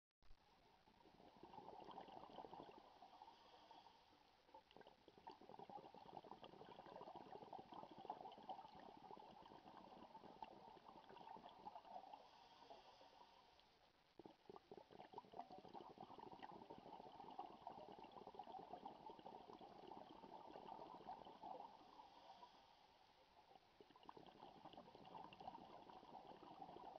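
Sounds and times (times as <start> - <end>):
underwater breath bubbling: 1.0 - 26.9.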